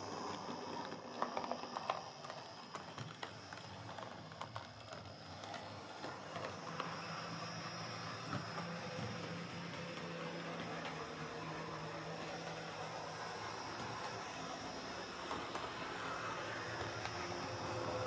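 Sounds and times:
model train motor hum: 0:00.0 - 0:18.0.

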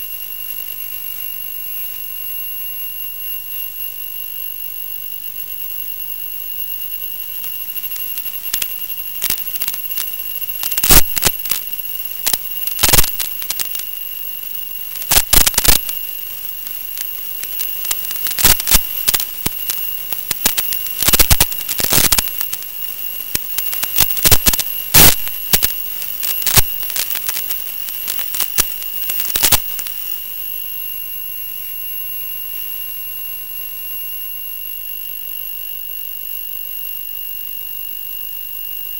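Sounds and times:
high-pitched electronic whine: 0:00.0 - 0:36.2
loud crackles and pops: 0:06.8 - 0:30.6.

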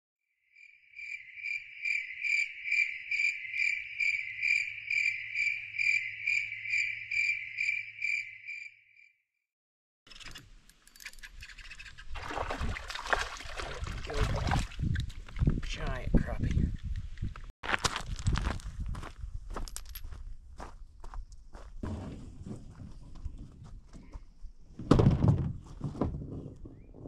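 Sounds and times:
cricket chirping: 0:00.5 - 0:09.1
clicks and rustling outdoors: 0:10.1 - 0:20.4, 0:21.1 - 0:27.0.

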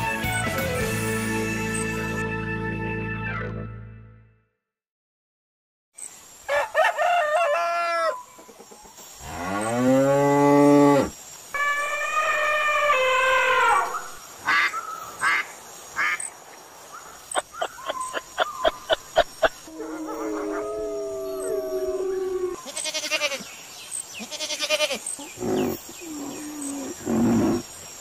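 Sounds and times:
cow mooing: 0:09.2 - 0:12.5
high drawn-out animal call: 0:10.7 - 0:15.4, 0:19.7 - 0:23.5, 0:24.2 - 0:27.7.

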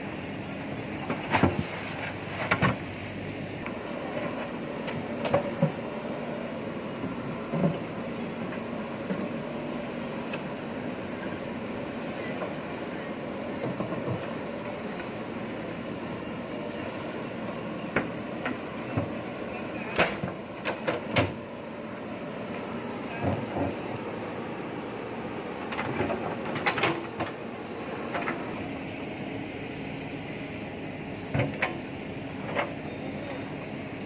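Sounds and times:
backhoe diesel engine running: 0:00.0 - 0:34.0.

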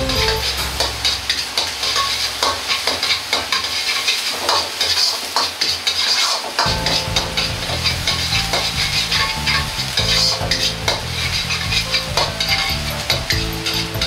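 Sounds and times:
aromatics sizzling in hot oil: 0:00.0 - 0:14.0
metal ladle scraping wok: 0:00.0 - 0:14.0.

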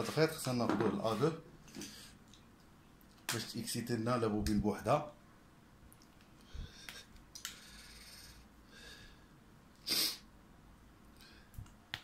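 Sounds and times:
person sniffing or sneezing: 0:09.8 - 0:10.3.

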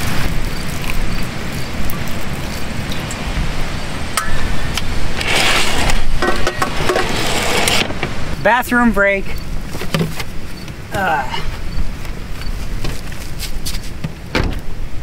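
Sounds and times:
wind on microphone: 0:00.0 - 0:08.4
rustling: 0:05.1 - 0:08.3, 0:11.4 - 0:14.7.

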